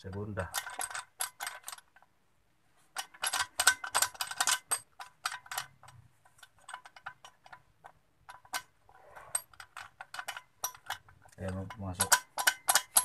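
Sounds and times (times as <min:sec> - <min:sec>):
gearbox gears clicking and clattering: 0:03.0 - 0:08.7, 0:09.3 - 0:13.0.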